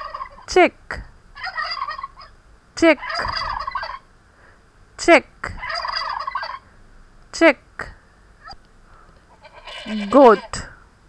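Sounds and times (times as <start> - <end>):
turkey gobbling: 0.0 - 0.5, 1.4 - 2.4, 3.0 - 4.1, 5.6 - 6.7, 9.3 - 10.7.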